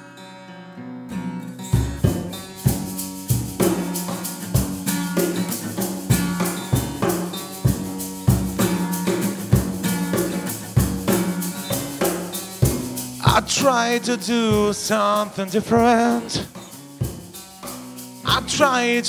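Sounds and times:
acoustic guitar strumming: 0:00.0 - 0:19.0
cajon thumps and slaps: 0:01.8 - 0:13.7
shaker hissing: 0:01.9 - 0:19.0.

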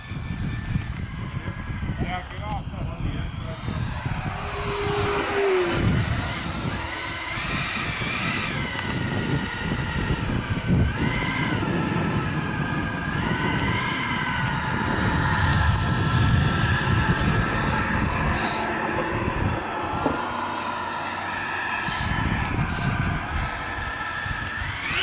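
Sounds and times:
jet engine flying past: 0:00.0 - 0:25.0.

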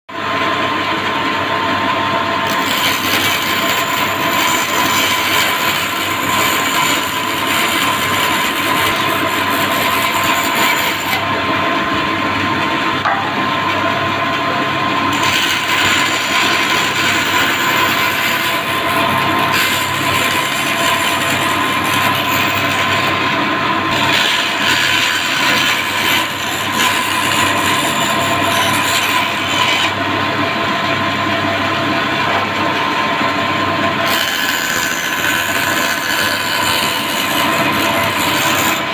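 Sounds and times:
bandsaw whine: 0:01.7 - 0:38.9
saw blade rasping through wood: 0:02.4 - 0:11.3, 0:15.1 - 0:23.3, 0:23.9 - 0:30.0, 0:34.0 - 0:38.9.

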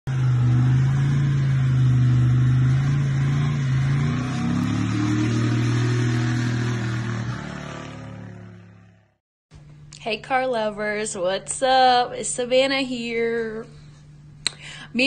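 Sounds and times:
car engine at high revs: 0:00.1 - 0:09.2.

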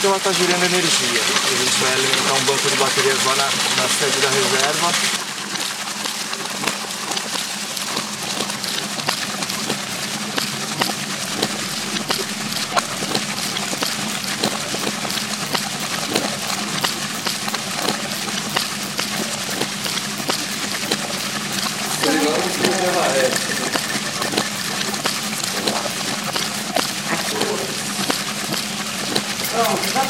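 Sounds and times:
water rushing and splashing: 0:00.0 - 0:30.0
steady low hum: 0:07.6 - 0:30.0.

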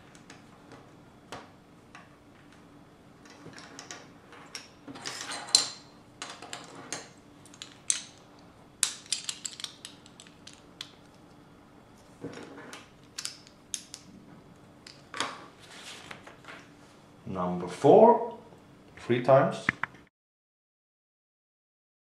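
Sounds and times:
plastic bricks rattling: 0:08.8 - 0:10.9
plastic bricks clicking: 0:08.8 - 0:11.0, 0:13.0 - 0:14.1.

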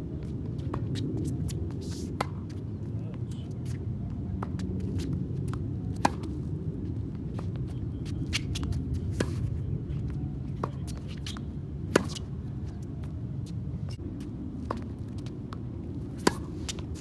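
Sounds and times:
tennis ball bouncing: 0:00.7 - 0:02.6, 0:04.4 - 0:06.5, 0:10.5 - 0:12.3, 0:14.6 - 0:17.0
tennis racquet hitting ball: 0:16.2 - 0:17.0.

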